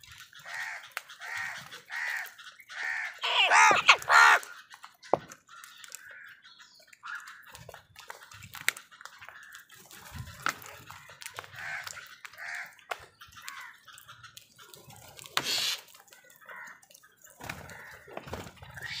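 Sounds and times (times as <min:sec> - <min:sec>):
beaks pecking plastic bowl: 0:00.0 - 0:19.0
crows cawing: 0:00.4 - 0:04.6, 0:05.5 - 0:07.6, 0:09.1 - 0:09.8, 0:11.0 - 0:14.2, 0:15.4 - 0:19.0.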